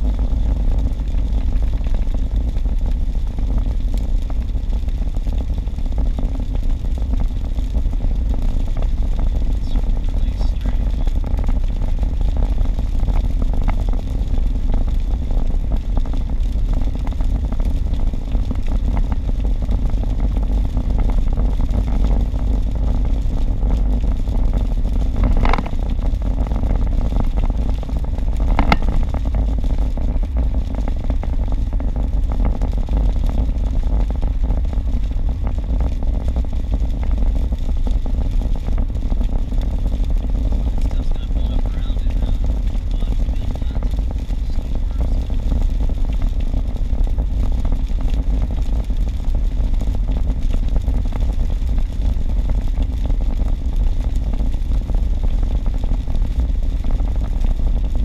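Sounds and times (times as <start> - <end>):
road and tyre noise inside car: 0.0 - 58.0.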